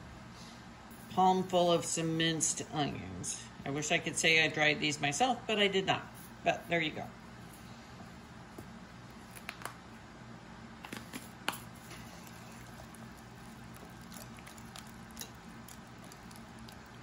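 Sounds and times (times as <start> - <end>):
whisk squishing thick filling: 11.8 - 17.0.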